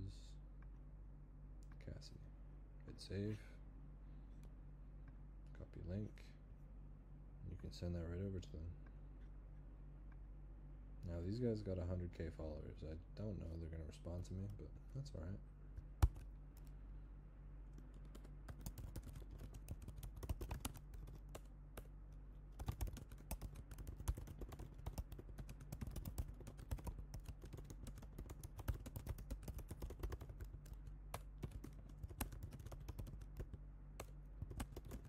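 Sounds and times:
faint low hum: 0:00.0 - 0:35.0
typing on computer keyboard: 0:16.0 - 0:16.3, 0:18.0 - 0:21.5, 0:22.6 - 0:35.0.

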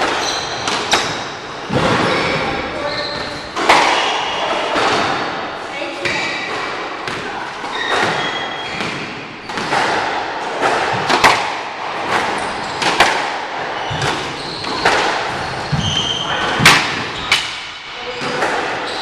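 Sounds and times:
shoes squeaking: 0:00.0 - 0:05.1, 0:07.2 - 0:09.9, 0:12.0 - 0:19.0
squash ball striking rackets and walls: 0:00.0 - 0:19.0.

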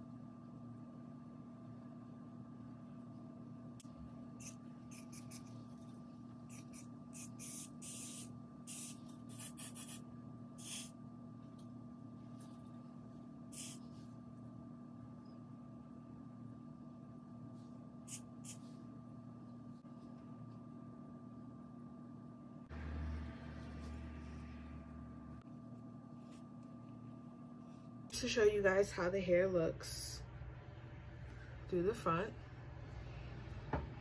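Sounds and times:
steady low hum: 0:00.0 - 0:34.0
aerosol spray hissing: 0:06.5 - 0:10.0, 0:10.6 - 0:10.9, 0:13.5 - 0:13.8.

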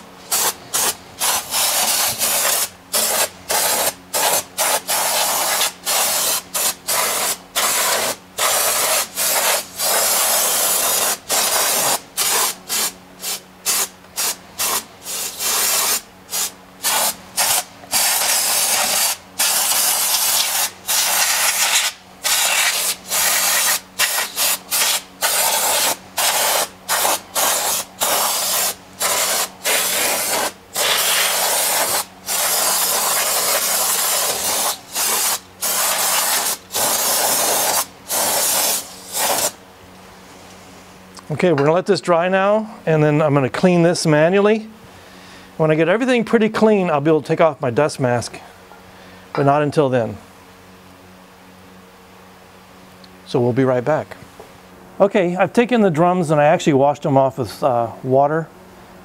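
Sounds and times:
aerosol spray hissing: 0:00.3 - 0:39.6.

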